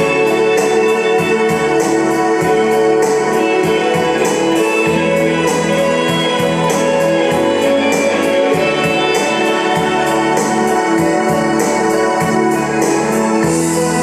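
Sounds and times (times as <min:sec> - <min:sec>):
bass line: 0:00.0 - 0:14.0
sustained keyboard chords: 0:00.0 - 0:14.0
drum beat: 0:03.4 - 0:11.5.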